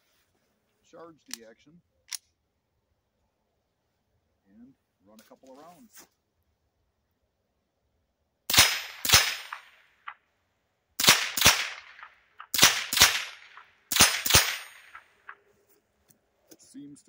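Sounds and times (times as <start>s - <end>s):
rifle shots with ringing tail: 8.5s - 10.2s, 11.0s - 15.4s.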